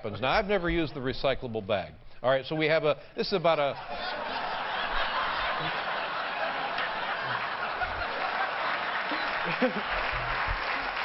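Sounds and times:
audience laughing: 3.8 - 11.0
audience applauding: 4.0 - 11.0.

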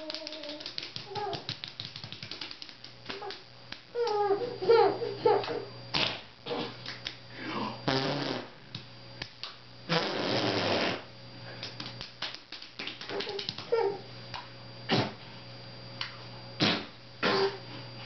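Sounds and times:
sputtering raspberry blows: 4.0 - 8.6, 9.8 - 11.1, 16.6 - 17.6.

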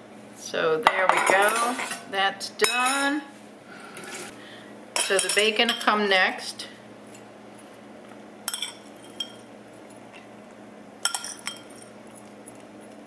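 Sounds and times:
metal spoon clinking on ceramic bowl: 8.5 - 9.4, 11.0 - 11.9.

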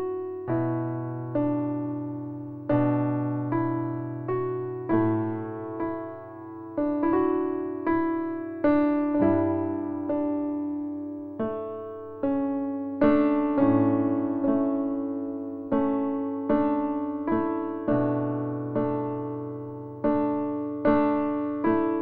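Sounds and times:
gentle piano chords: 0.0 - 22.0.

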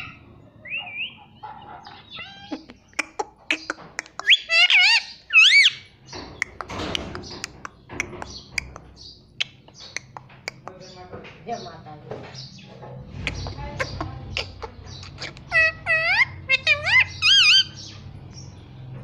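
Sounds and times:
parakeet harsh squawk: 0.0 - 5.9, 13.3 - 17.9
parakeet chirps and whistles: 3.5 - 5.8, 13.3 - 18.0.

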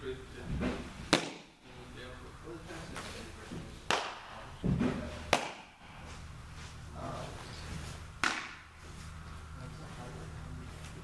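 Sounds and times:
baseballs smacking into gloves: 0.7 - 1.6, 3.9 - 5.8, 8.2 - 8.7.

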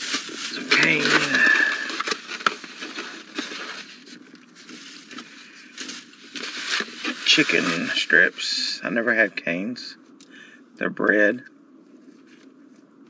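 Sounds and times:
paper bag rustling and crinkling: 0.0 - 9.2.

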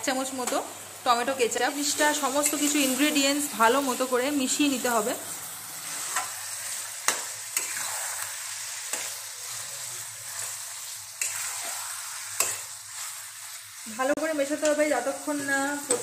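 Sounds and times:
meat sizzling in a pan: 0.0 - 16.0.

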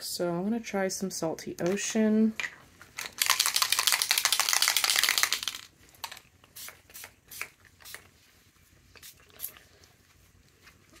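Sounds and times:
spray bottle hissing: 6.6 - 8.0.

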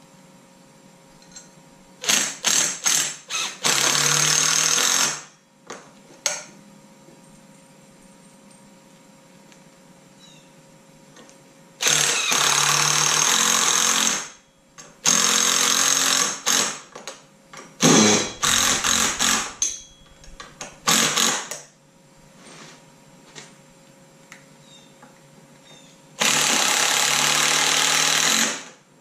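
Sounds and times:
cordless drill running: 2.0 - 5.3, 11.8 - 14.4, 15.0 - 16.8, 17.8 - 19.6, 20.9 - 21.5, 26.2 - 28.8.

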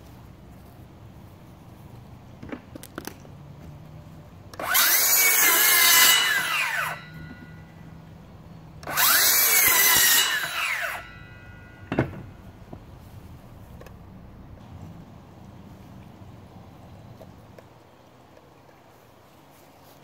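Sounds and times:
circular saw motor whine: 4.6 - 12.7.

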